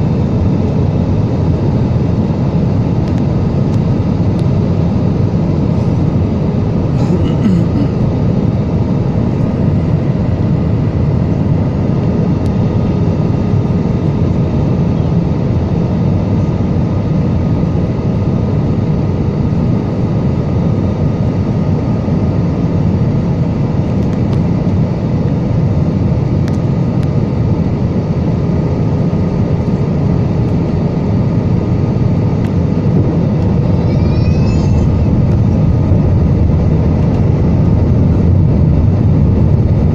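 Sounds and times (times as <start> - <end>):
faint steady hums: 0.0 - 39.9
jet engine and airflow rumble: 0.0 - 39.9.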